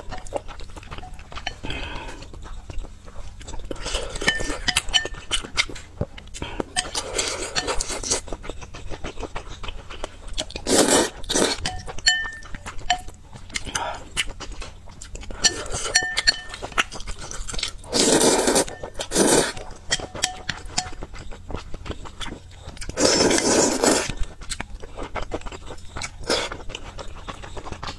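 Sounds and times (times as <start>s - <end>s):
chewing noodles: 0.0s - 27.9s
slurping noodles: 10.6s - 11.6s, 17.3s - 19.6s, 22.9s - 24.2s.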